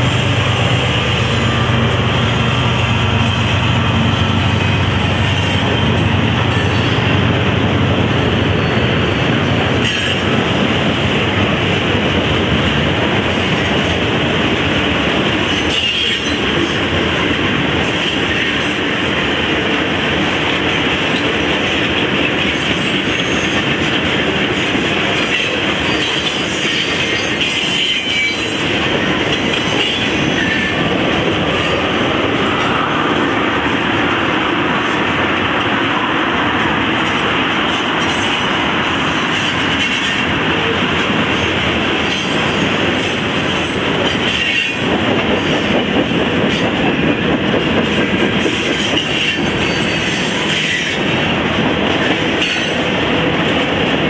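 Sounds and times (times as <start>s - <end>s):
diesel locomotive engine drone: 0.0s - 54.0s
train wheels rumbling and rattling: 0.0s - 54.0s.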